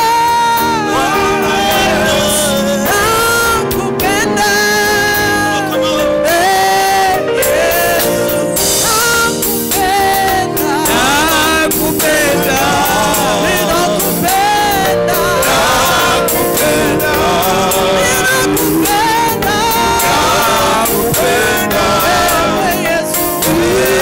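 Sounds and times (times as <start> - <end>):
instrumental accompaniment: 0.0 - 24.0
men singing: 0.0 - 24.0.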